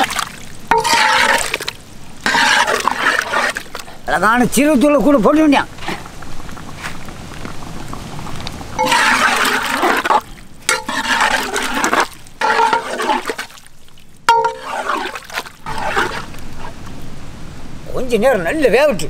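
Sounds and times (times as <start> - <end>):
thick curry sloshing when stirred: 0.0 - 3.8, 8.8 - 16.8
ladle scraping metal pot: 0.7 - 3.8, 8.8 - 13.6, 14.3 - 16.8.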